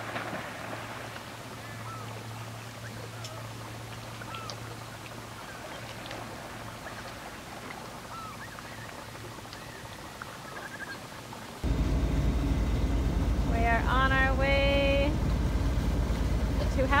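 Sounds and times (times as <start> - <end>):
gulls calling: 0.0 - 17.0.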